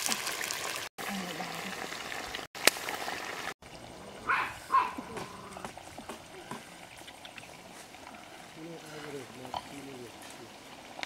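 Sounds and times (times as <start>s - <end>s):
fish frying in oil: 0.0s - 4.0s.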